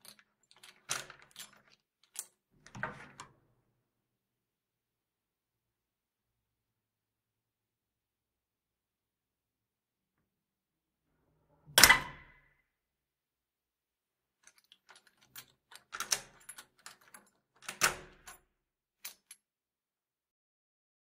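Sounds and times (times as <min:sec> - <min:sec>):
lock mechanism rattling clicks: 0:14.5 - 0:18.4.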